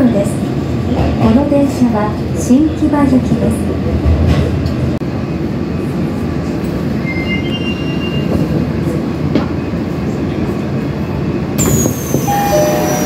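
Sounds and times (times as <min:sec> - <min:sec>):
subway train rumbling: 0:00.0 - 0:13.0
faint squeal: 0:07.0 - 0:08.4, 0:11.6 - 0:13.0.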